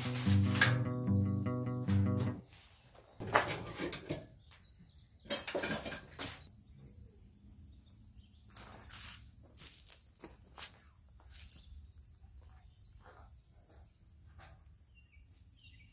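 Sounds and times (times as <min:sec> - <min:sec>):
metal clattering and scraping: 0:03.2 - 0:04.3, 0:05.3 - 0:06.5
insects chorus: 0:03.2 - 0:15.9.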